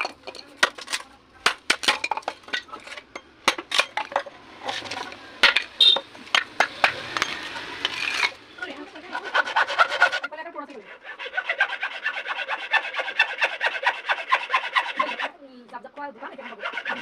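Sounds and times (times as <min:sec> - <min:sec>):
machete chopping bamboo: 0:00.0 - 0:08.4
bamboo rasping: 0:00.0 - 0:15.4, 0:16.0 - 0:17.0.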